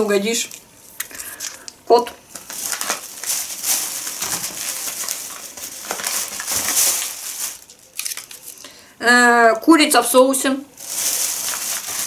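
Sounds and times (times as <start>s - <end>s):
plastic packaging crinkling: 1.0s - 8.7s, 10.7s - 12.0s.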